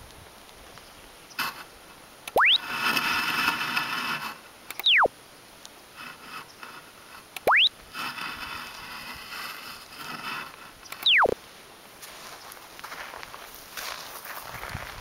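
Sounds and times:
stylus scratching through sand: 0:01.4 - 0:01.7, 0:02.4 - 0:04.5, 0:05.9 - 0:07.3, 0:07.9 - 0:11.4
electronic falling pitch sweep: 0:02.3 - 0:02.6, 0:04.8 - 0:05.1, 0:07.4 - 0:07.7, 0:11.0 - 0:11.4
electronic rising pitch sweep: 0:02.3 - 0:02.6, 0:04.8 - 0:05.1, 0:07.4 - 0:07.7, 0:11.0 - 0:11.4.

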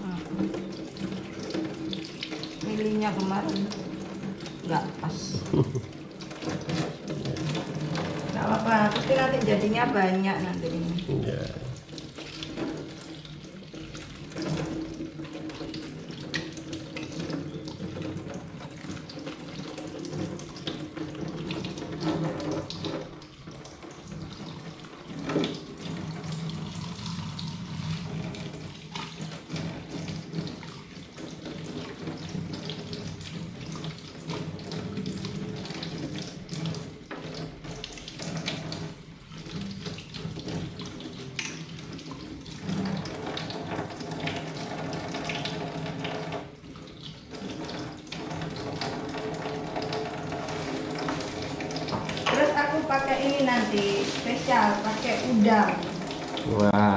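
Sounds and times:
water splashing: 0:00.0 - 0:56.9
tap running into a steel sink: 0:47.4 - 0:52.5.

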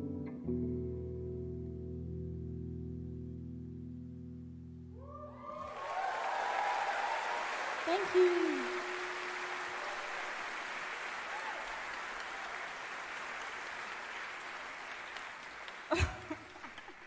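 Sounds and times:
audience applauding: 0:05.1 - 0:17.0.

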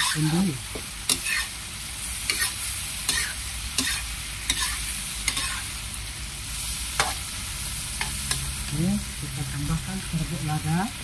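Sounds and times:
metal spatula scraping a wok: 0:00.0 - 0:05.8
food sizzling in oil: 0:00.0 - 0:11.0.

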